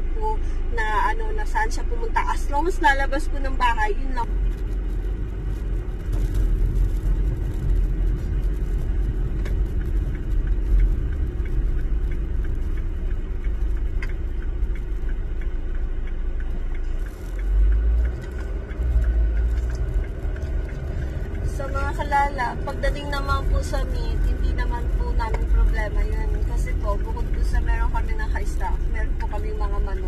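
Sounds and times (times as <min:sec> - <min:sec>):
car engine and road noise: 0:00.0 - 0:30.0.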